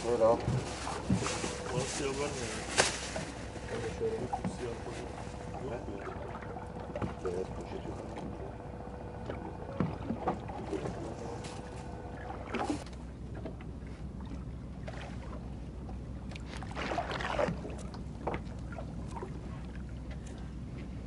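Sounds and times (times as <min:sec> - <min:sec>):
boat engine low hum: 0:00.0 - 0:21.0
rustling: 0:00.4 - 0:05.4, 0:11.3 - 0:12.0.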